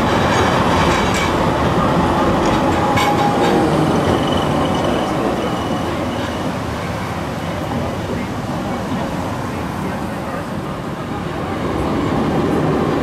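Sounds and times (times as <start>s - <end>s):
tram wheels rumbling: 0.0s - 13.0s
high wheel squeal: 2.6s - 7.2s.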